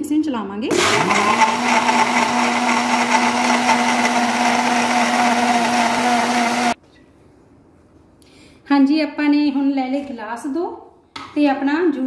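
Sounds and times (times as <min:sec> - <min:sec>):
blender running: 0:00.7 - 0:06.8.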